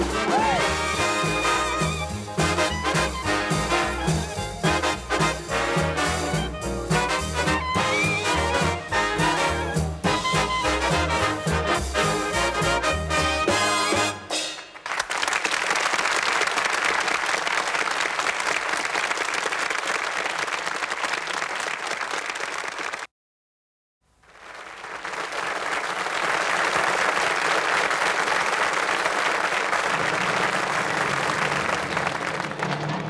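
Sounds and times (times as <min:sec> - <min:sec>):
audience applauding: 0:00.0 - 0:06.1, 0:14.6 - 0:23.1, 0:24.2 - 0:33.0.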